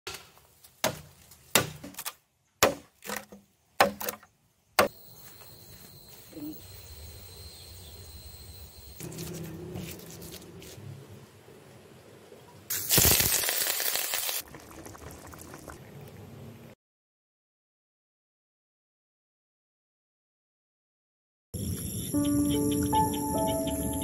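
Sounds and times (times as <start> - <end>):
chopping strikes into wood: 0.1 - 5.0
thin high whine: 4.9 - 10.8.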